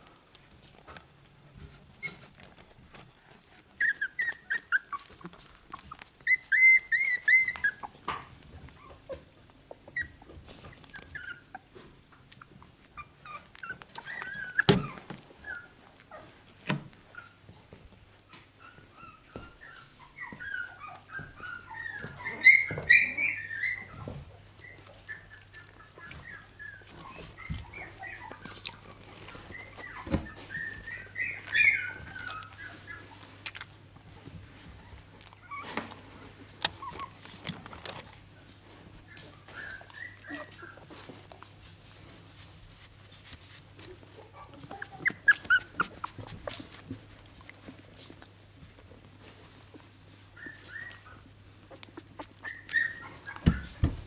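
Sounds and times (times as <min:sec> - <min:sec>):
puppies whimpering and squeaking: 0:00.4 - 0:54.0
rustling on bedding: 0:25.8 - 0:54.0.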